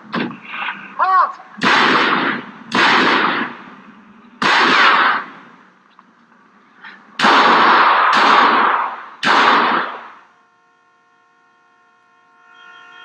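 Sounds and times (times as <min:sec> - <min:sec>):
pistol shots echoing: 0:01.6 - 0:03.7, 0:04.4 - 0:05.4, 0:07.2 - 0:10.2
distant car horn: 0:10.2 - 0:13.0.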